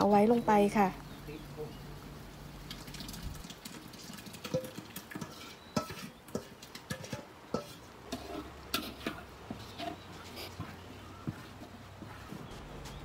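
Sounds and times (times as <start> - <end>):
soft wet stirring scrapes: 3.7 - 13.0
metal spoon scraping a bowl: 4.4 - 10.7.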